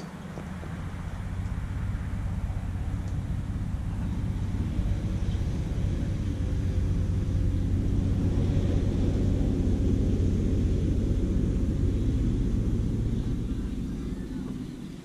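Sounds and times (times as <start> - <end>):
low engine drone: 0.0 - 15.0.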